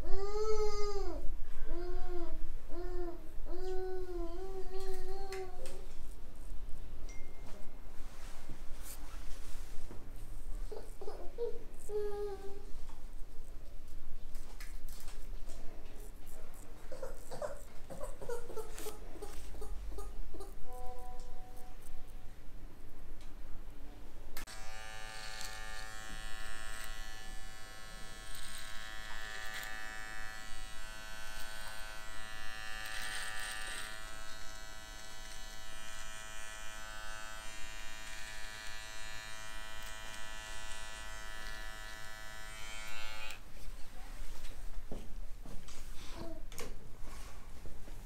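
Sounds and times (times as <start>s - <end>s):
electric hair trimmer buzzing: 24.4s - 43.4s.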